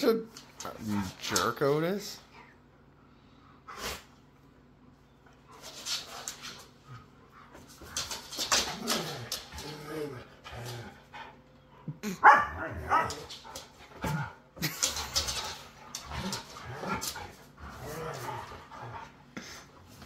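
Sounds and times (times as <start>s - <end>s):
dogs barking: 12.2s - 13.3s.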